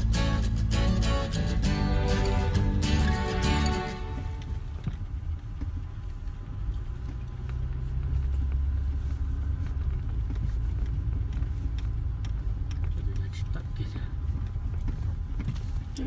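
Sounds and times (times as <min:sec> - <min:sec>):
vehicle driving on dirt road: 0:00.0 - 0:16.0.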